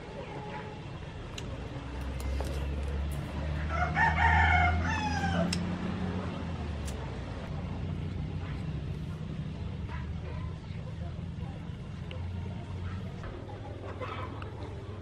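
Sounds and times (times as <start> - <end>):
rooster crowing: 3.6 - 5.7.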